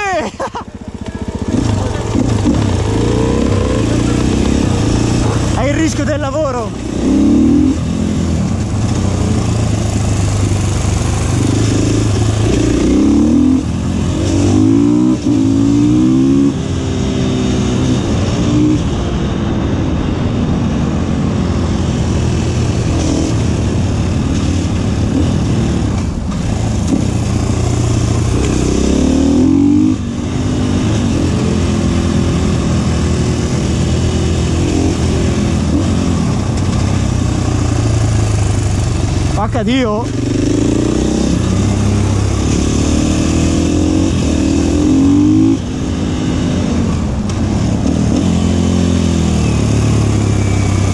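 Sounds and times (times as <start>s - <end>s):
motorcycle engine accelerating: 0.0s - 50.9s.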